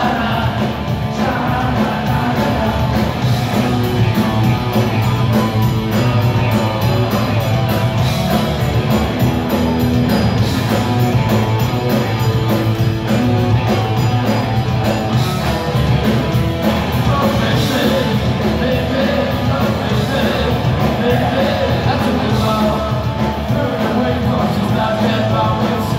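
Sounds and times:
lead vocals into microphone: 0:00.0 - 0:03.4
punk rock band playing live: 0:00.0 - 0:25.9.

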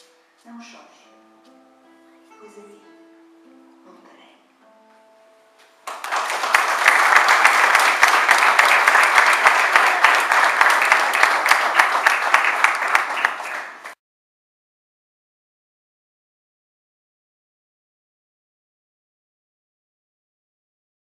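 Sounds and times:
audience applauding: 0:05.9 - 0:14.0.

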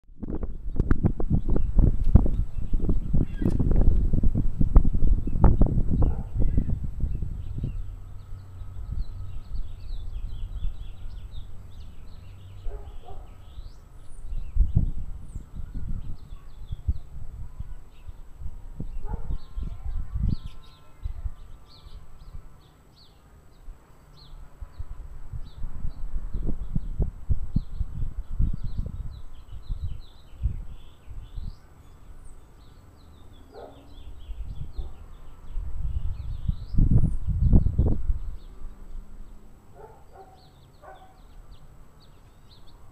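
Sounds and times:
steady low rumble: 0:00.1 - 0:20.4
small birds chirping: 0:00.2 - 0:42.9.

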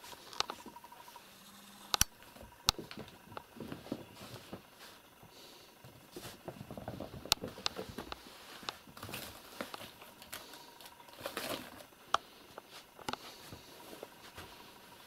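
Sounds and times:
kittens scampering and scratching: 0:00.0 - 0:15.0
sharp clicks: 0:01.8 - 0:03.5.

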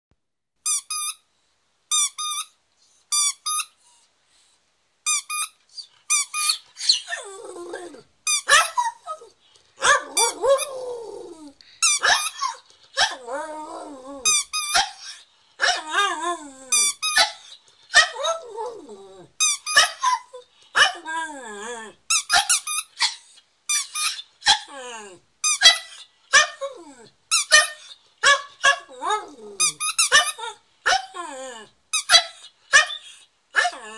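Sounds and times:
squeaky dog toy squeaking: 0:00.6 - 0:01.2, 0:01.9 - 0:04.1, 0:05.0 - 0:07.2, 0:08.2 - 0:10.7, 0:11.8 - 0:13.1, 0:14.2 - 0:16.0, 0:16.7 - 0:18.2, 0:19.4 - 0:20.3, 0:22.1 - 0:24.7, 0:25.4 - 0:26.6, 0:27.3 - 0:28.4, 0:29.6 - 0:31.0, 0:31.9 - 0:33.7
dog howling: 0:08.6 - 0:11.6, 0:12.3 - 0:14.3.

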